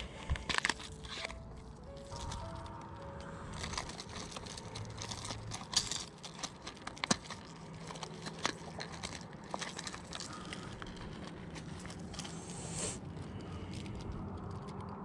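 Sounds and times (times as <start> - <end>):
plastic blister pack crinkling: 0.0 - 15.0.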